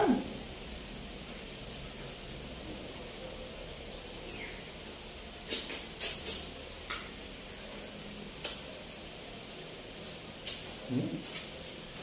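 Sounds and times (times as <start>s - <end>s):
faint hiss: 0.0s - 12.0s.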